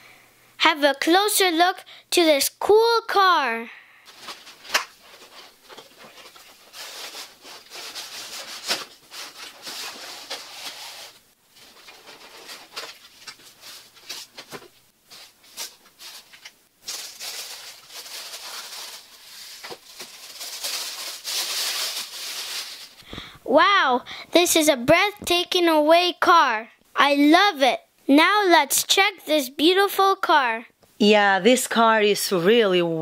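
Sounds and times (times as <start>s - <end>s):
wrapping rustling and crinkling: 4.0s - 23.2s
cardboard and styrofoam handled: 4.1s - 23.0s.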